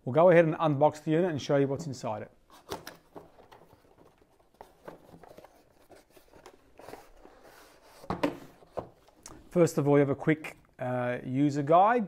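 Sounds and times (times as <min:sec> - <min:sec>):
cardboard scraping and rustling: 0:02.5 - 0:09.0.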